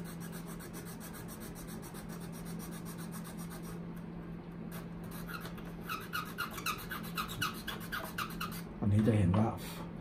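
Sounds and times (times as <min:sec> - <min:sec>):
steady low hum: 0:00.0 - 0:10.0
file rasping on wood: 0:05.1 - 0:08.7.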